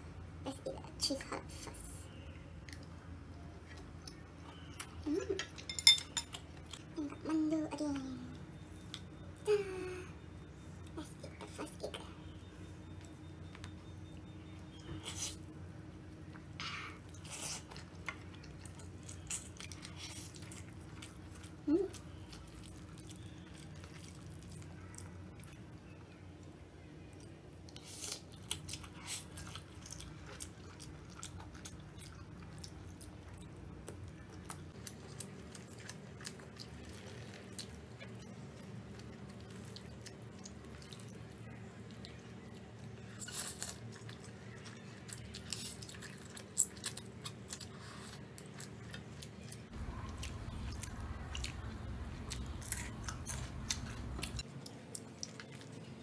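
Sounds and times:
chewing noodles: 16.2 - 56.0
low rumble: 49.7 - 54.4.

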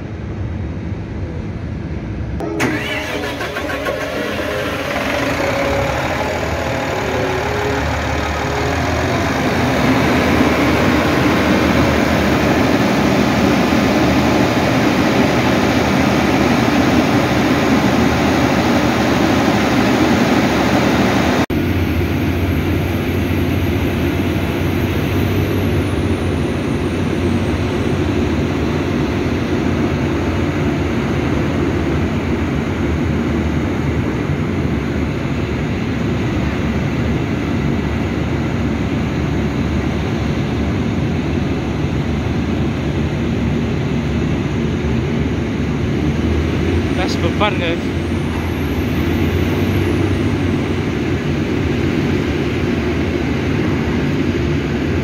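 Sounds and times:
diesel crane engine under load: 0.0 - 55.0
diesel engine starting and running: 0.0 - 55.0
faint high whine: 2.4 - 15.4.

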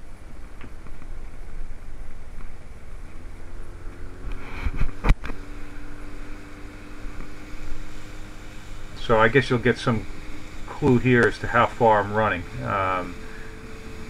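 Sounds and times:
boat engine revving: 2.8 - 14.0.

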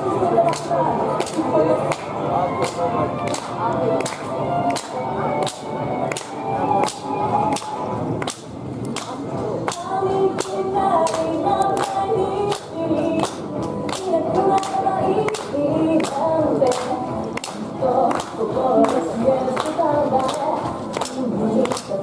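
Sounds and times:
woman singing: 0.0 - 2.1, 9.0 - 22.0
pop song over pa: 0.0 - 5.2, 8.9 - 22.0.

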